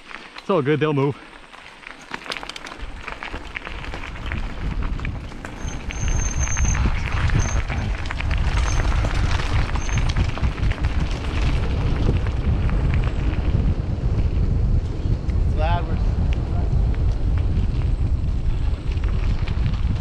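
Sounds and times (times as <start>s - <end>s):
mountain bike rattling on dirt: 0.0s - 20.0s
wind buffeting microphone: 2.7s - 20.0s
high squeal: 5.5s - 7.8s, 8.5s - 10.2s.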